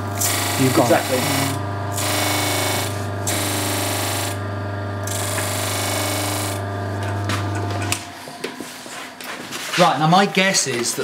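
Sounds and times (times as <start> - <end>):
disc sander motor hum: 0.0 - 8.6.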